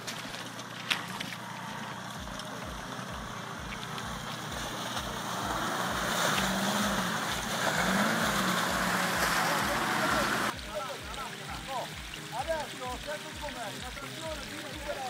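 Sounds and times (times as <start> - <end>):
off-road vehicle engine in mud: 0.0 - 10.6.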